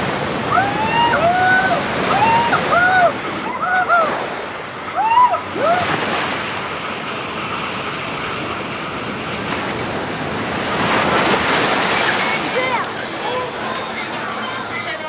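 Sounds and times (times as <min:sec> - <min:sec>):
water rushing under raft: 0:00.0 - 0:15.0
rider whooping: 0:00.4 - 0:06.1.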